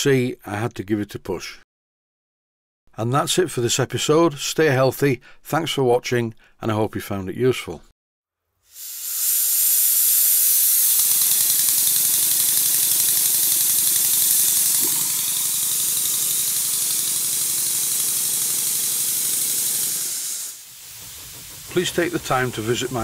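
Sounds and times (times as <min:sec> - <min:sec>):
model steam engine running: 0:08.8 - 0:23.0.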